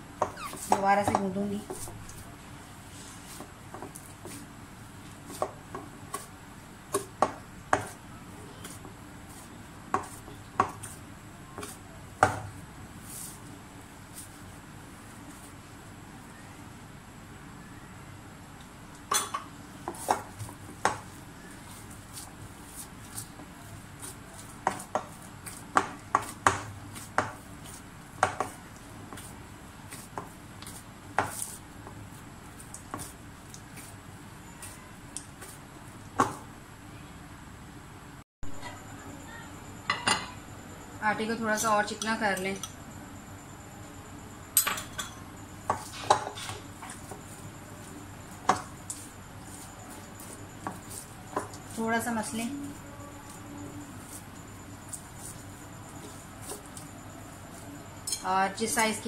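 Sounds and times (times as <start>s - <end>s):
hands kneading dough: 0.0s - 16.8s, 19.6s - 36.6s, 45.6s - 59.0s.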